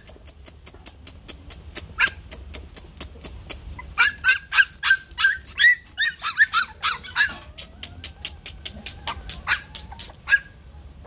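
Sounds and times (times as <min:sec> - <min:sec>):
puppies yapping: 0:02.0 - 0:02.3, 0:03.7 - 0:10.6.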